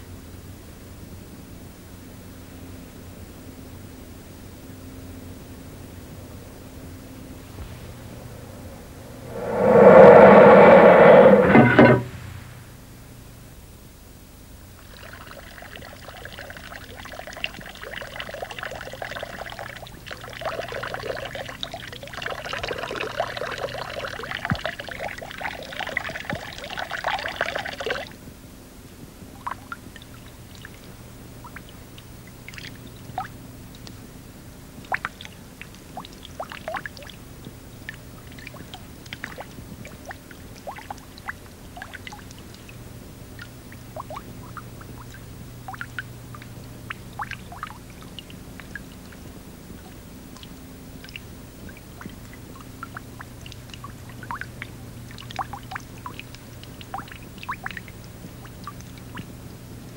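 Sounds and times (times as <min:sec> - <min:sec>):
steady low hum: 0:04.5 - 0:13.0
small drips and clicks: 0:14.8 - 0:28.1, 0:29.4 - 0:34.1, 0:34.8 - 0:59.9.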